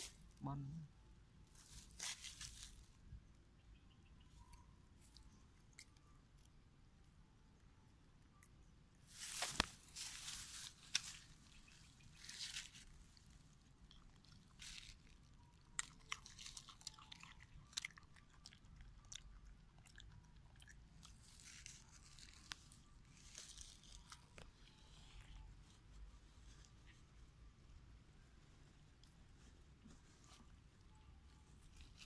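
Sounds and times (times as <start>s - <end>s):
faint clicks and rustles: 21.0s - 32.0s.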